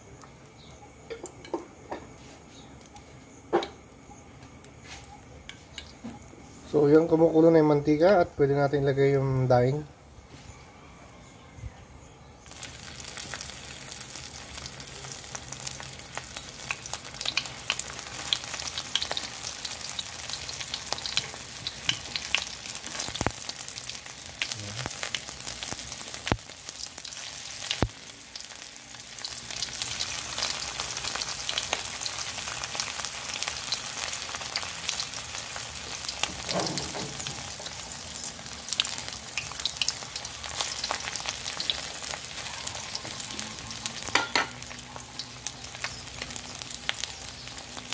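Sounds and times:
fish sizzling in hot oil: 12.5s - 47.9s
oil crackling and popping: 12.5s - 47.9s.

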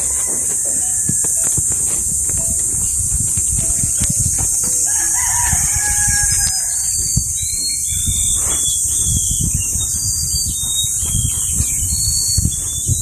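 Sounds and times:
rooster crowing: 0.0s - 1.9s, 4.7s - 7.3s.

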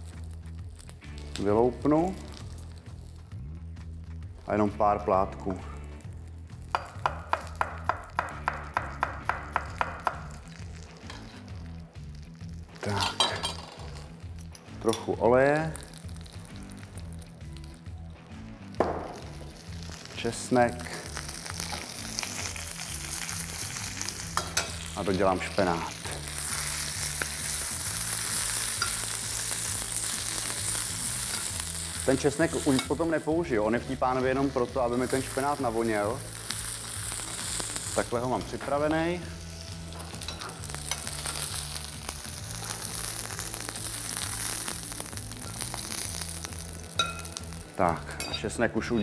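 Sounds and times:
spinach sizzling in hot oil: 0.0s - 3.5s, 4.2s - 48.5s
metal tongs turning food: 10.4s - 11.6s, 12.8s - 15.2s, 21.1s - 38.7s, 39.8s - 48.4s.

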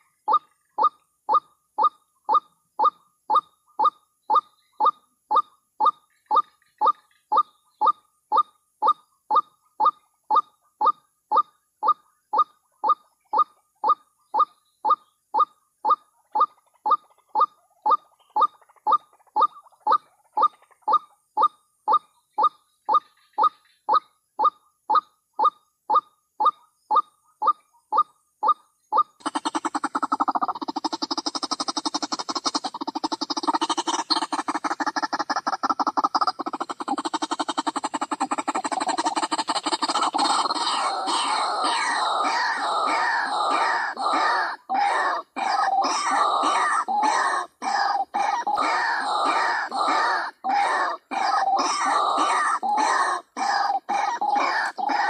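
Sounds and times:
waterhen calling nasal notes: 29.0s - 55.0s.

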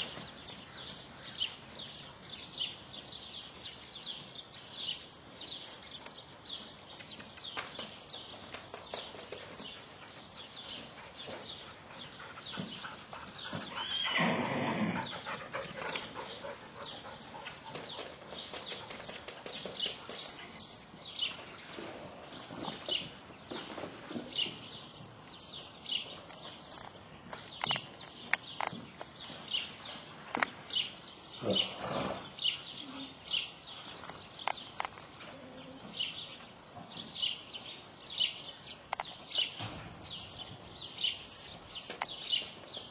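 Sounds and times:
small birds chirping: 0.0s - 42.9s
horse whinnying: 13.6s - 15.0s.

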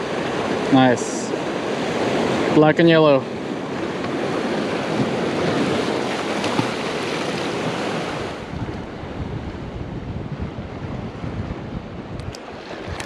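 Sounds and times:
ocean surf washing: 0.0s - 13.0s
wind buffeting microphone: 3.3s - 13.0s.

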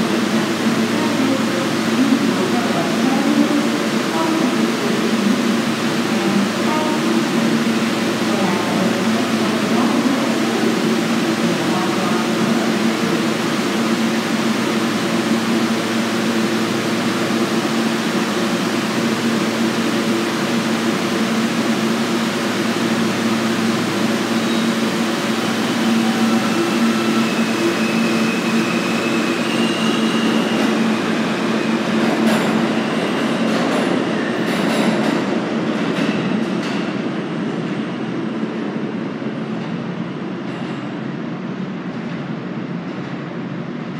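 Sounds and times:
subway train running past: 0.0s - 43.9s
high wheel squeals: 24.4s - 24.8s, 25.6s - 31.8s.

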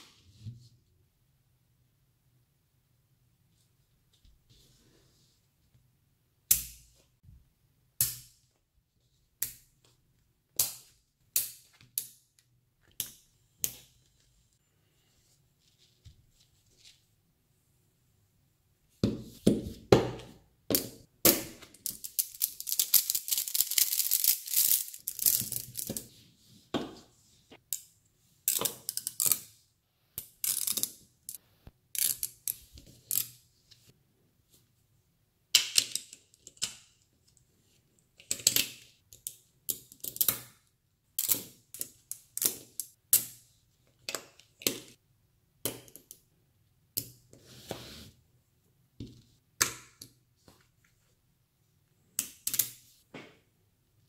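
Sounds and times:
magnet balls clicking: 21.7s - 25.9s.

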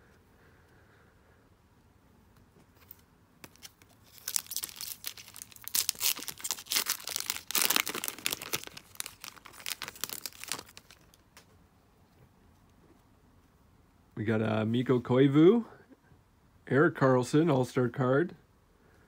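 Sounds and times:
foil wrapper tearing and crinkling: 3.4s - 11.2s.

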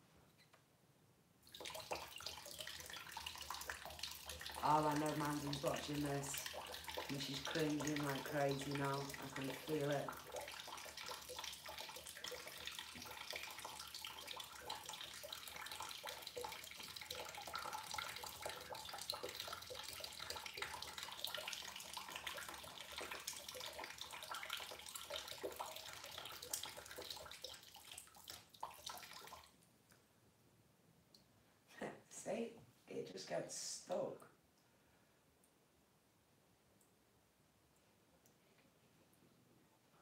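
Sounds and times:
water running and gurgling: 1.5s - 29.5s.

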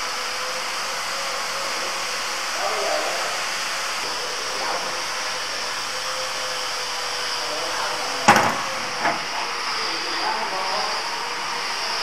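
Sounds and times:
metal cabinet latch clack: 8.3s - 9.2s.

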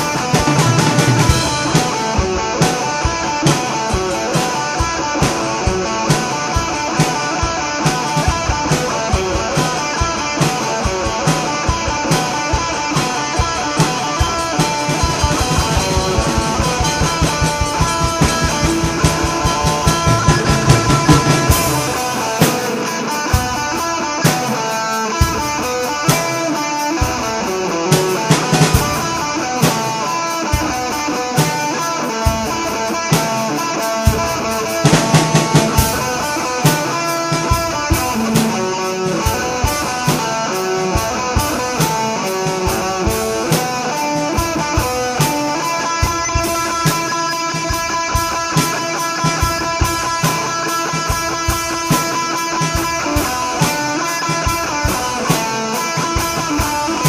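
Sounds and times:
rock music: 0.0s - 57.0s.

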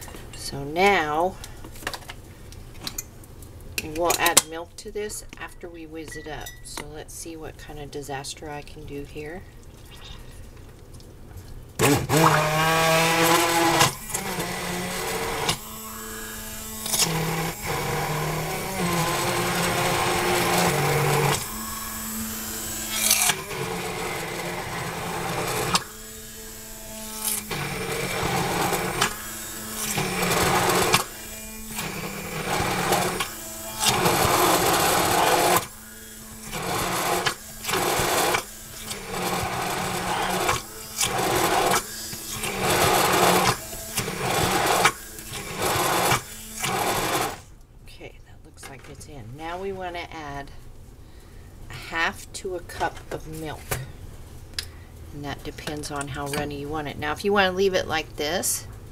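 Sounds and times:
immersion blender whizzing: 11.8s - 47.5s.

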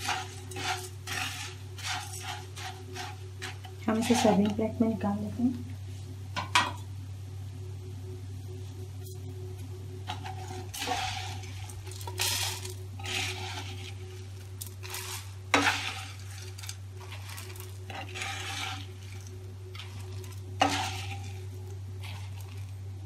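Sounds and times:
spatula scraping puffed rice: 0.0s - 4.6s, 10.0s - 23.0s.

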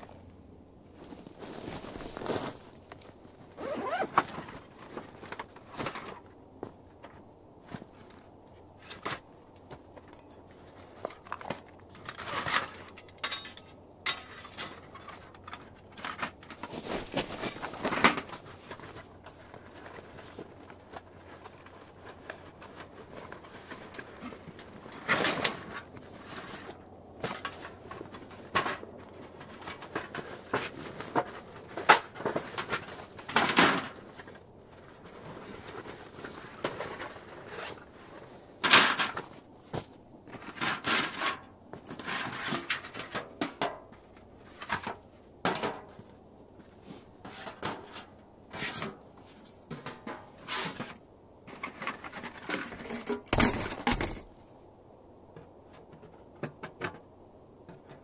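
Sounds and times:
fabric bag rustling: 0.9s - 5.2s.

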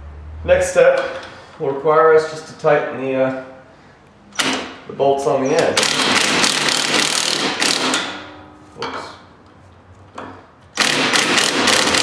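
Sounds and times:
impact driver hammering: 5.8s - 8.3s, 10.2s - 12.0s.

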